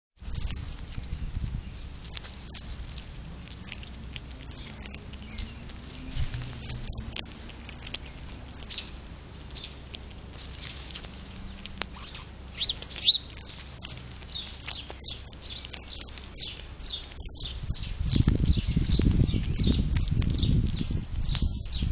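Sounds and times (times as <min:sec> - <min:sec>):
squirrel paws clicking and scratching: 0:00.2 - 0:21.9
bird chirps: 0:04.4 - 0:07.0, 0:07.6 - 0:09.8, 0:10.5 - 0:21.9.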